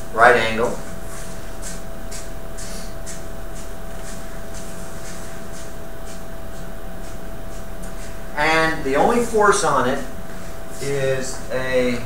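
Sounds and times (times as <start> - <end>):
faint constant hum: 0.0 - 12.0
soft high-pitched puffs: 0.9 - 8.9
even hiss: 2.6 - 3.0.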